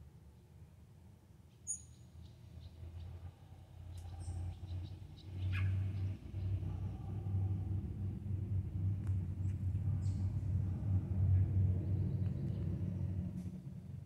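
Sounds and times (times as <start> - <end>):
high bird chirps: 1.6 - 3.1
low rumble: 3.2 - 14.0.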